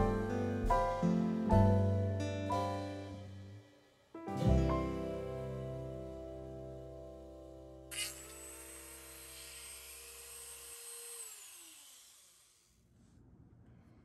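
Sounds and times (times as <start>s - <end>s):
rotary tool whining: 7.9s - 12.8s.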